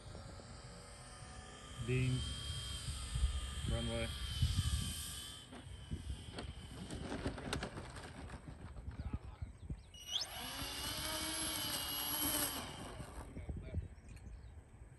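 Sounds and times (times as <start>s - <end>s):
electric motors whining: 0.0s - 8.3s, 9.8s - 13.6s
model plane wheels rattling: 3.8s - 9.1s, 10.2s - 13.4s.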